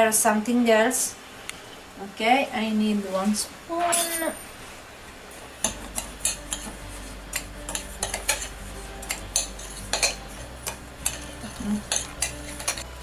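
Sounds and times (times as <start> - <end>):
low steady hum: 0.0 - 13.0
cutlery clinking against dishes: 7.3 - 12.8.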